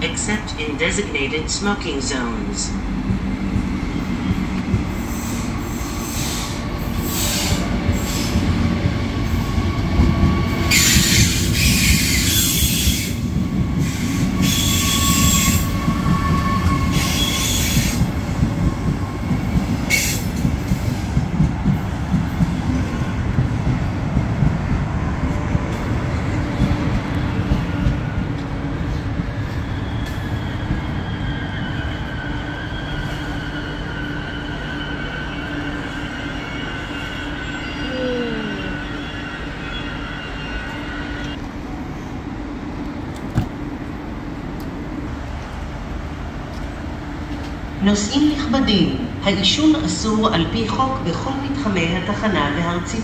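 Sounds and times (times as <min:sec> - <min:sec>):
train wheels rumbling: 0:00.0 - 0:53.0.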